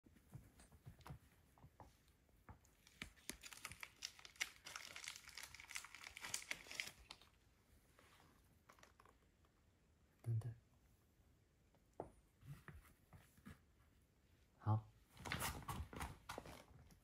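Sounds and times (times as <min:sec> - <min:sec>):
plastic packaging crinkling: 0:02.8 - 0:07.4.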